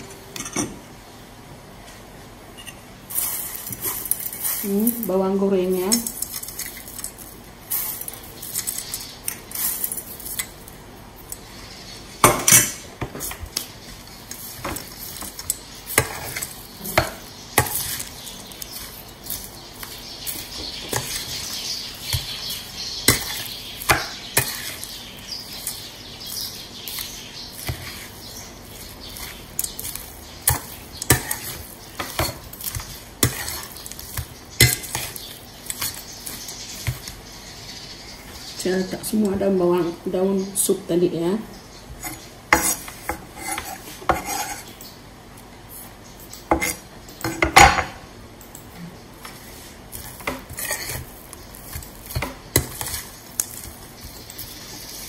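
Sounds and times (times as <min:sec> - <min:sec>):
spoon scraping bowl: 0:14.3 - 0:37.1, 0:42.0 - 0:44.8, 0:49.2 - 0:55.0.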